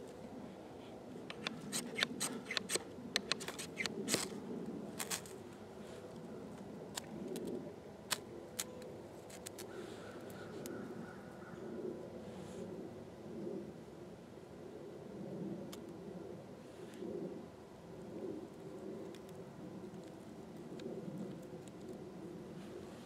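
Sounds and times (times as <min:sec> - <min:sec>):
knife scraping a stick: 0:01.3 - 0:04.4.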